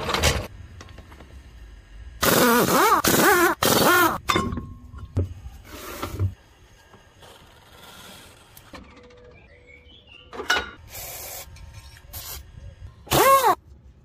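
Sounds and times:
impact wrench whirring: 2.2s - 4.2s, 13.1s - 13.6s.

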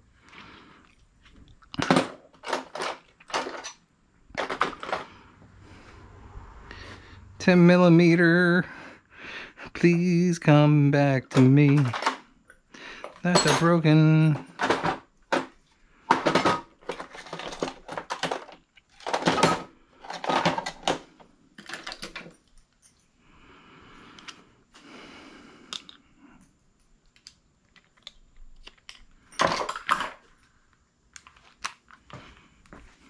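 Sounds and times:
metal tools clinking and rattling: 1.7s - 3.8s, 11.2s - 12.2s, 13.0s - 15.5s, 16.1s - 21.0s, 28.9s - 30.4s.

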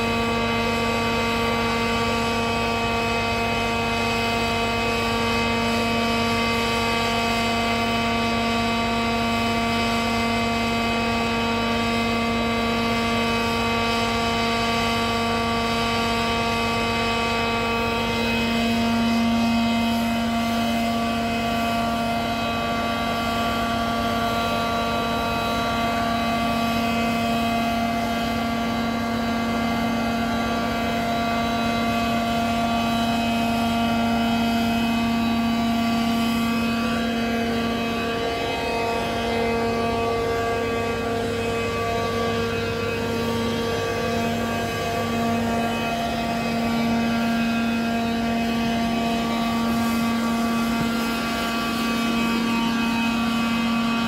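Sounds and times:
ground power unit droning: 0.0s - 54.0s.

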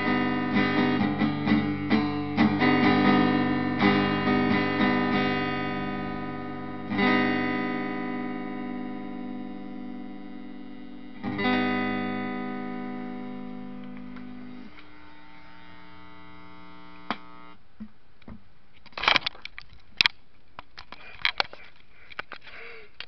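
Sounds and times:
electric guitar chord ringing: 0.0s - 17.5s.

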